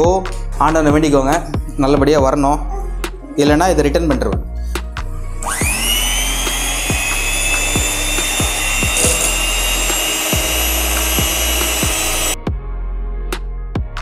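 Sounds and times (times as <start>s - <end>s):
background music with steady beat: 0.0s - 14.0s
electric hand mixer whining: 5.4s - 12.4s.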